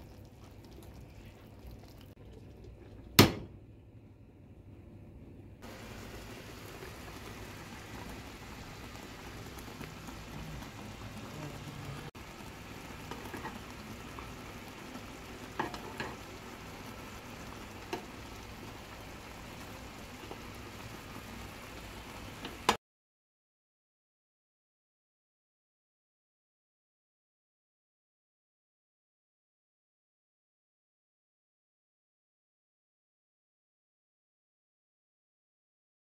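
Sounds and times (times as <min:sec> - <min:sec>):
sauce bubbling and sizzling in pan: 0:00.0 - 0:03.4, 0:05.6 - 0:22.8.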